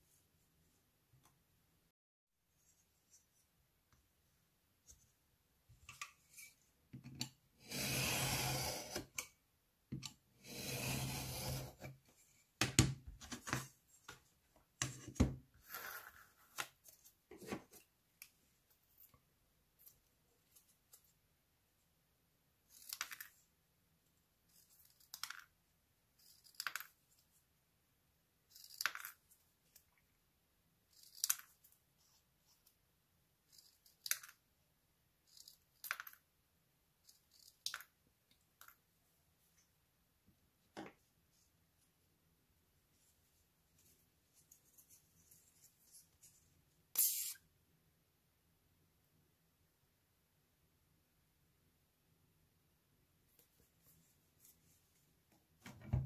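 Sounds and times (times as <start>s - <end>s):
craft knife slicing cardboard: 7.6s - 9.2s, 10.4s - 12.0s.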